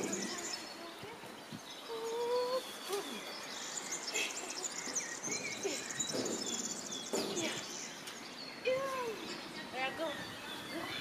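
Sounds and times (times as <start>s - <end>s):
outdoor background noise: 0.0s - 11.0s
small birds chirping: 0.0s - 11.0s.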